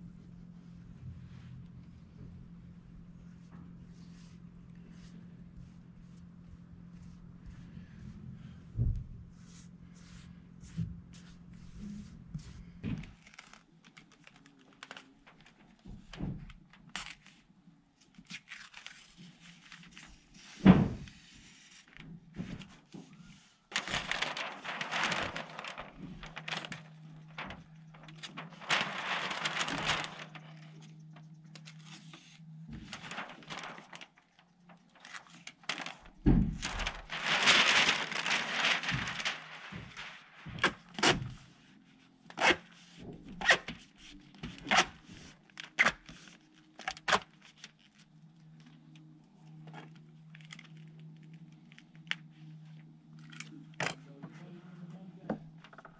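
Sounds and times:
house wrap crinkling and tearing: 0:12.4 - 0:20.6, 0:21.8 - 0:41.4, 0:42.3 - 0:54.0.

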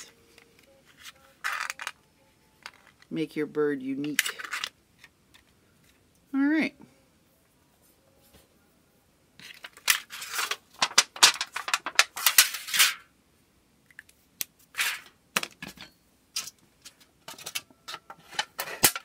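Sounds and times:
metal sheet crinkling: 0:00.0 - 0:02.0, 0:09.4 - 0:13.1, 0:14.7 - 0:15.1, 0:16.4 - 0:19.0.

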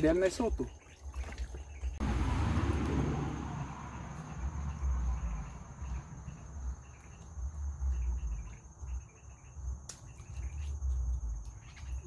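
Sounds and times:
low rumble: 0:02.0 - 0:08.5
insects droning: 0:02.0 - 0:12.0
bird chirps: 0:03.9 - 0:12.0.

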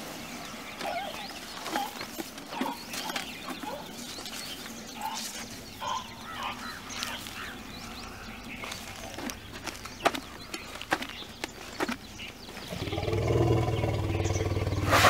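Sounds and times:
elephants chirping: 0:00.7 - 0:15.0.

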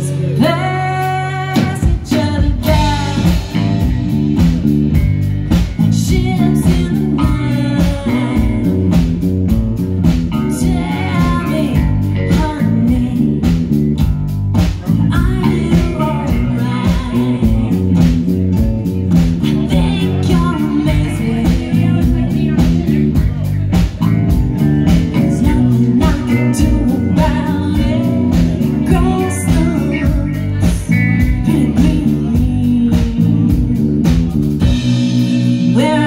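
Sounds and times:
woman singing: 0:00.0 - 0:04.4, 0:05.5 - 0:13.8, 0:14.6 - 0:23.4, 0:24.8 - 0:36.0
rock band playing: 0:00.0 - 0:36.0.

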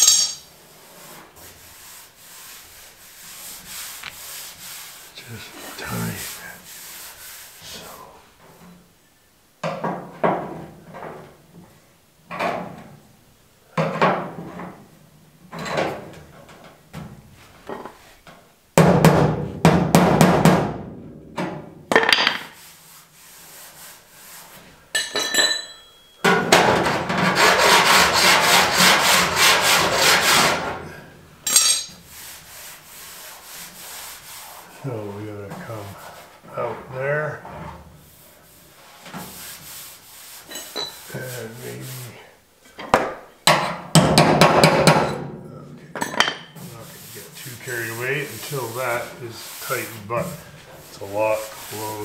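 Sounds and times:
metallic ring: 0:00.0 - 0:00.5, 0:24.9 - 0:26.2, 0:31.5 - 0:32.0.

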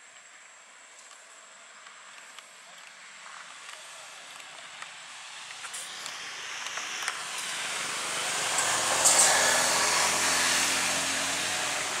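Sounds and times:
vehicle engine approaching: 0:03.8 - 0:12.0.

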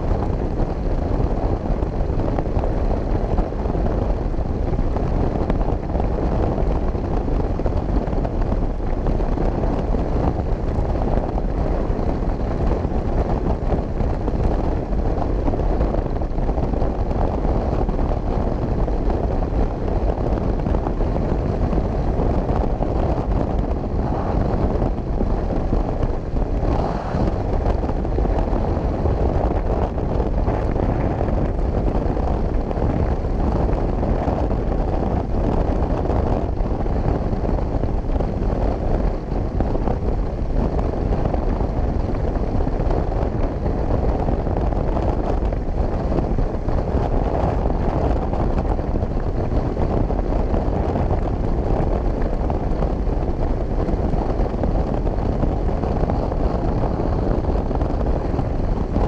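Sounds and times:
motorcycle engine and tyre noise: 0:00.0 - 0:59.0
wind buffeting microphone: 0:00.0 - 0:59.0.

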